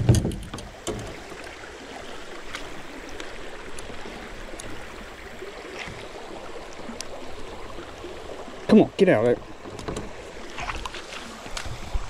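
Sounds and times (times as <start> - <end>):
creek water running over rocks: 0.0 - 12.0
faint ticks: 2.5 - 4.8, 6.6 - 7.2.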